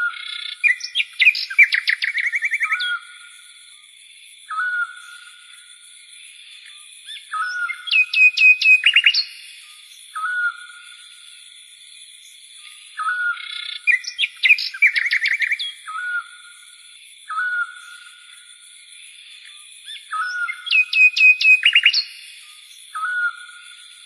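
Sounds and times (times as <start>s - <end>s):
bird-like chirping: 0.0s - 3.2s, 6.6s - 11.0s, 12.2s - 16.5s, 19.4s - 23.8s.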